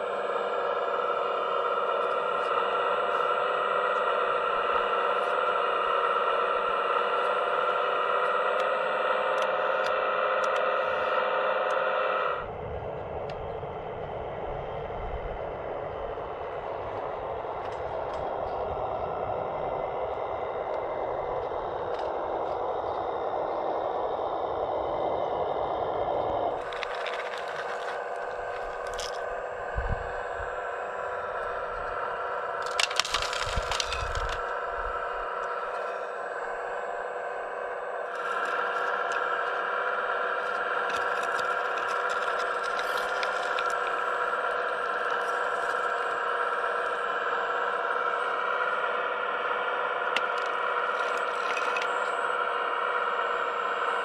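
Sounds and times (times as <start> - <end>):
hydraulic pump whining: 0.0 - 54.0
clatter and scraping of rubble: 26.6 - 29.3, 32.6 - 34.6, 38.1 - 46.8, 50.0 - 52.2.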